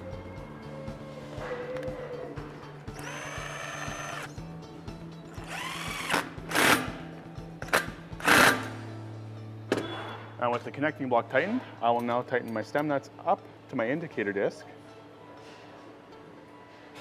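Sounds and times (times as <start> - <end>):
cordless power driver running bolts: 3.0 - 4.3, 5.4 - 6.9.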